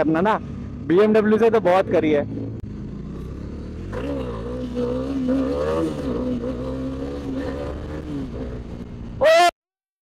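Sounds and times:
motorcycle engine revving high: 0:01.9 - 0:09.2.

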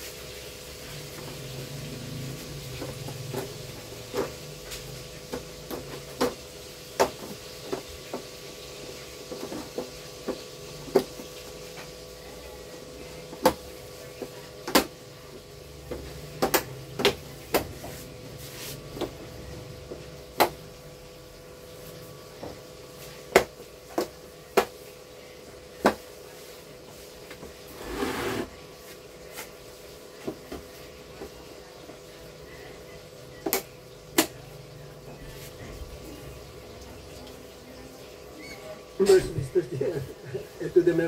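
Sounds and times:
scraping rustle: 0:27.7 - 0:28.6.

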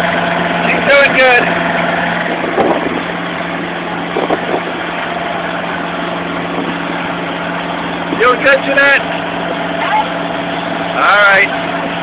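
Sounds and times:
motorboat engine humming: 0:00.0 - 0:12.0
water wash: 0:00.0 - 0:12.0
wind noise: 0:00.6 - 0:08.5.

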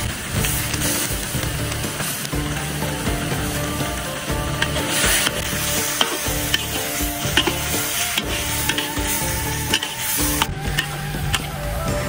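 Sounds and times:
sauce sizzling: 0:00.0 - 0:11.9
metal spatula scraping a wok: 0:01.9 - 0:11.5
spatula knocking against wok: 0:04.4 - 0:11.5.

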